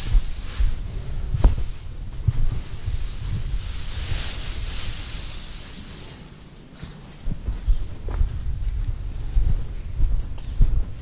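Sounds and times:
straw rustling: 0:00.0 - 0:06.4.

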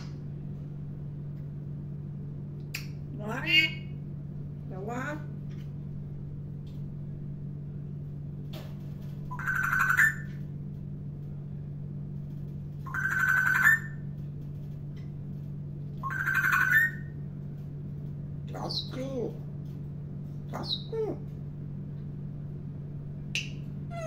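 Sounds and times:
steady low hum: 0:00.0 - 0:24.0
parrot electronic-sounding call: 0:09.3 - 0:10.3, 0:12.9 - 0:14.0, 0:16.0 - 0:17.2, 0:20.5 - 0:21.2.

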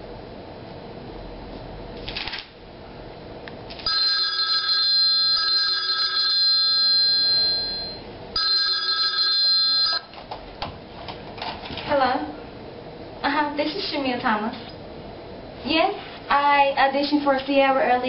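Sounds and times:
telephone ringing: 0:03.9 - 0:10.1.

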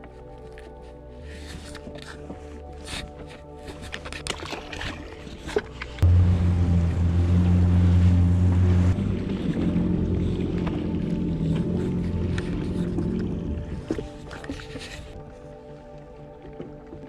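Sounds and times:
jet ski engine running: 0:05.8 - 0:15.2.

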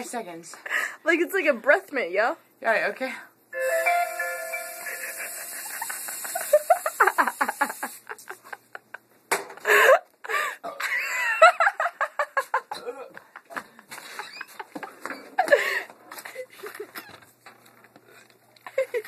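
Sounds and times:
aerosol spray can hissing: 0:04.9 - 0:08.1.

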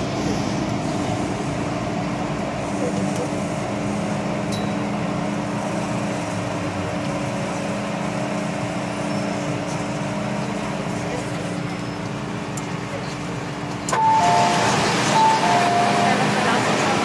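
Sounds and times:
running and ventilation noise: 0:00.0 - 0:17.0
train car hum: 0:00.0 - 0:17.0.

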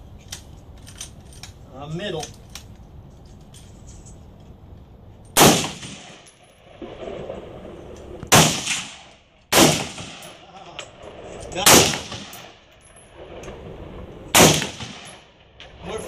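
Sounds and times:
rifle shots with echo: 0:05.4 - 0:06.2, 0:08.3 - 0:10.5, 0:11.1 - 0:12.6, 0:13.2 - 0:15.3.

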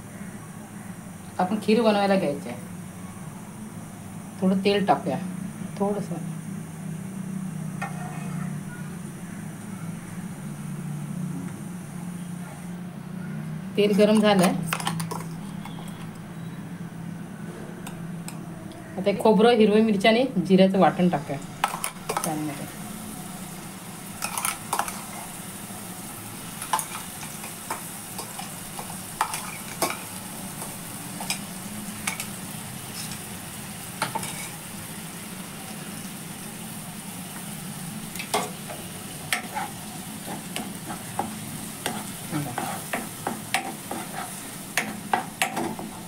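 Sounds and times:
spoon scraping pan: 0:07.8 - 0:08.6, 0:24.2 - 0:25.4, 0:26.6 - 0:33.3, 0:34.0 - 0:34.6, 0:38.2 - 0:46.0
paste sizzling in hot oil: 0:21.5 - 0:46.0.

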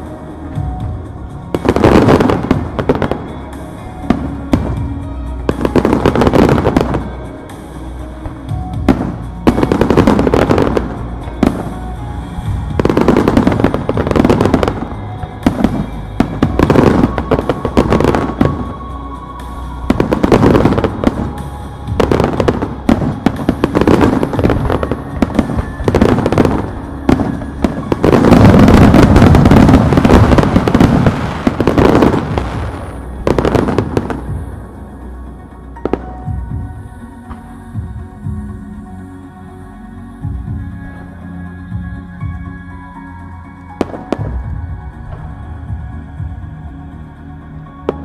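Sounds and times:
music playing: 0:00.0 - 0:48.0
fireworks bangs and crackle: 0:00.6 - 0:07.5, 0:08.2 - 0:19.0, 0:19.6 - 0:34.6, 0:43.8 - 0:45.3.

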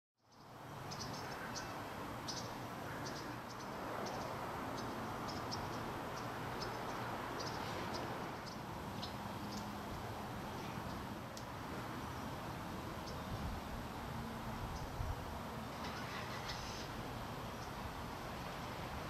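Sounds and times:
steady hiss: 0:09.5 - 0:19.0.

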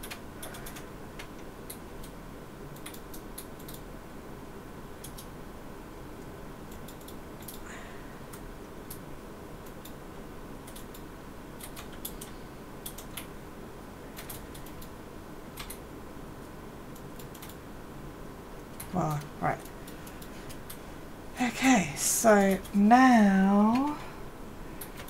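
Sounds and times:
light clicks and ticks: 0:00.0 - 0:03.9, 0:05.0 - 0:05.3, 0:06.2 - 0:07.6, 0:10.6 - 0:13.3, 0:18.6 - 0:20.8
low room hum: 0:00.0 - 0:25.0.

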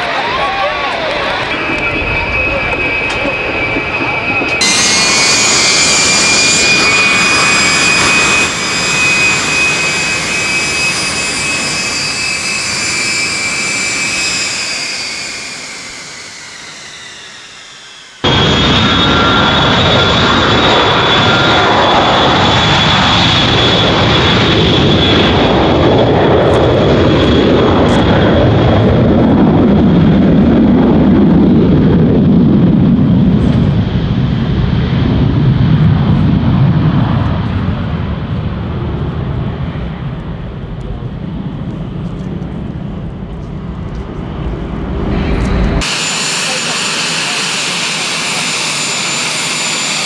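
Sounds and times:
high fan whine: 0:00.0 - 0:21.7
jet engines passing: 0:00.0 - 0:50.0.

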